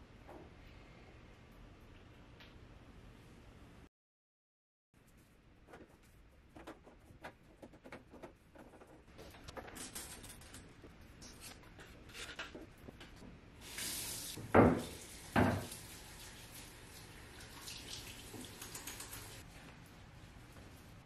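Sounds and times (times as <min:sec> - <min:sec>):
water running from a tap: 0:13.6 - 0:19.4
small items clicking on a counter: 0:18.4 - 0:19.4.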